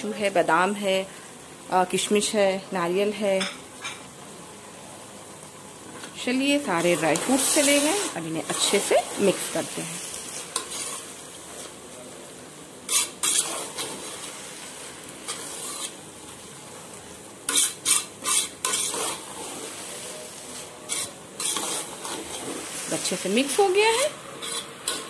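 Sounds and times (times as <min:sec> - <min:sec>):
pan sizzling: 0:00.0 - 0:25.0
metal spoon scraping a pot: 0:10.5 - 0:11.1, 0:12.9 - 0:14.2, 0:15.3 - 0:16.0, 0:17.5 - 0:19.6, 0:20.8 - 0:22.6, 0:23.9 - 0:25.0.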